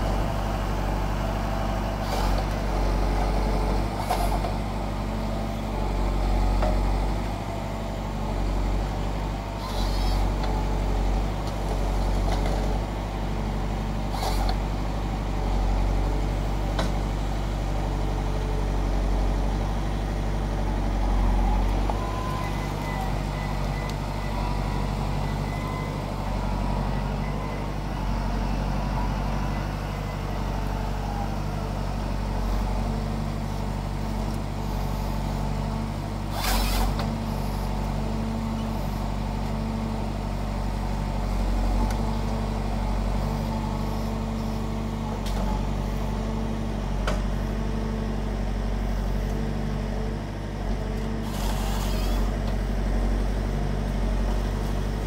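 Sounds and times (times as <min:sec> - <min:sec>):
diesel tractor engine running: 0:00.0 - 0:55.0
hydraulic whine: 0:09.6 - 0:10.6, 0:14.1 - 0:14.6, 0:36.2 - 0:39.0, 0:51.1 - 0:52.5.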